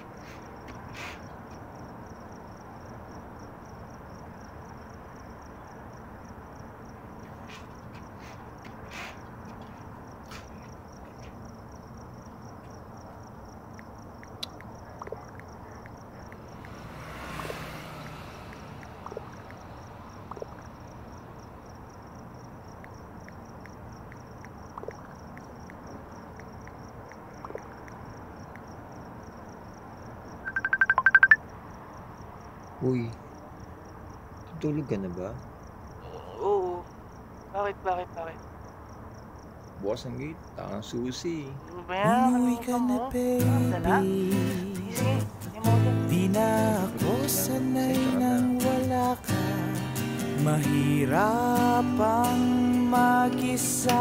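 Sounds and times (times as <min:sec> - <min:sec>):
cricket chirping: 0:00.0 - 0:54.0
low background noise: 0:18.7 - 0:49.2
lower-pitched faint chirps: 0:30.4 - 0:31.5.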